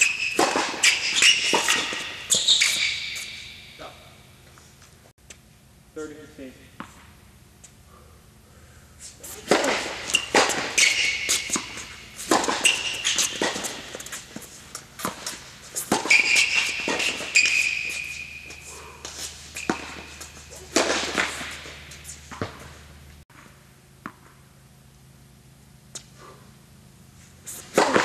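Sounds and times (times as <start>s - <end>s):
tennis ball hits echoing: 0.0s - 2.7s, 9.4s - 14.2s, 19.6s - 22.7s, 27.7s - 28.0s
ball bouncing: 0.0s - 3.4s, 9.4s - 24.4s
sneakers squeaking on court: 0.0s - 4.4s, 9.2s - 23.1s.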